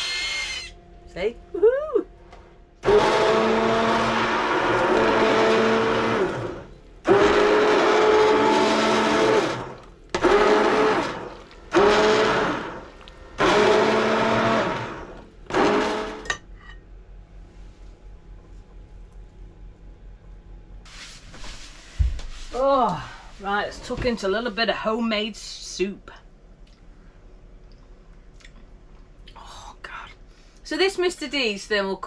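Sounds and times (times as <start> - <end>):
stick blender motor whine: 0.0 - 0.8, 2.8 - 16.3.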